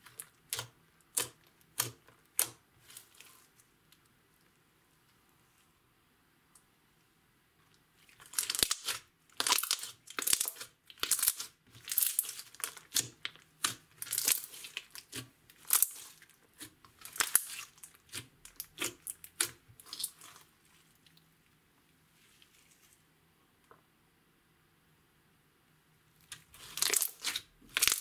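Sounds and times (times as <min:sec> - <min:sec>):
slime squishing and popping: 0:00.0 - 0:03.0, 0:08.2 - 0:20.4, 0:26.3 - 0:28.0.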